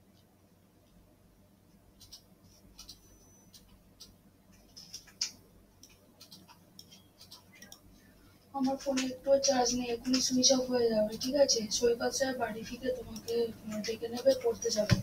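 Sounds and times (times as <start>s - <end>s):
computer mouse clicks: 2.0s - 7.9s, 8.6s - 11.4s, 12.8s - 15.0s
scroll wheel ticks: 2.0s - 7.9s, 12.8s - 15.0s.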